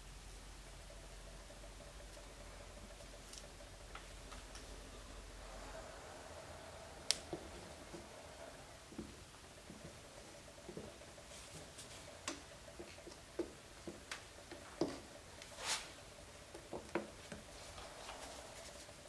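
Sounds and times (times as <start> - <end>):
faint steady hum: 0.0 - 19.0
melting plastic ticks and crackles: 0.7 - 4.7, 9.0 - 15.5.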